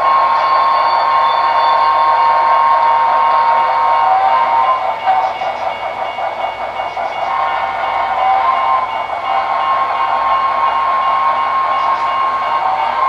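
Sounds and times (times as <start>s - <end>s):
model train held high tones: 0.0s - 13.0s.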